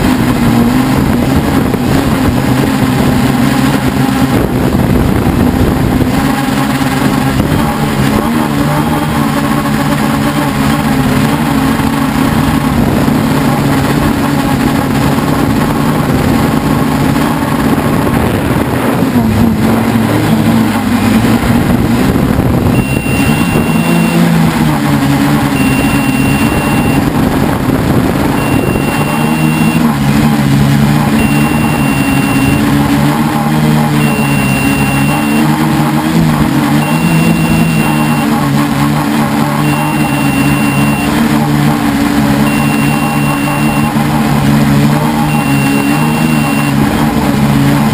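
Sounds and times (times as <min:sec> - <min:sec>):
quadcopter motors droning: 0:00.0 - 0:47.9
thin electronic beep: 0:22.7 - 0:24.4, 0:25.5 - 0:27.1, 0:28.3 - 0:29.9, 0:31.1 - 0:32.8, 0:34.0 - 0:35.6, 0:36.7 - 0:38.4, 0:39.6 - 0:41.2, 0:42.4 - 0:44.0, 0:45.2 - 0:46.9.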